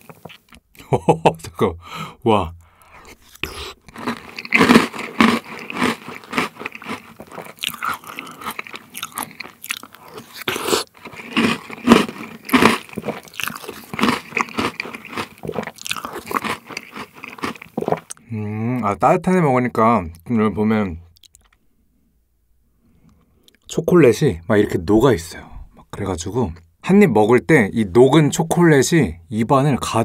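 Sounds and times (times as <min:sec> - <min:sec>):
crunchy chewing: 0:02.8 - 0:18.2.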